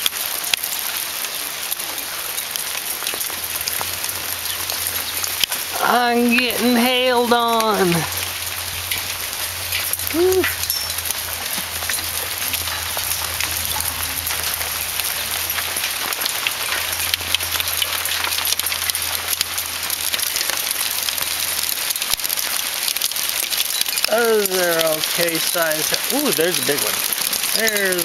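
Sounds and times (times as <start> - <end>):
hailstones ticking on patio: 0.0 - 28.0.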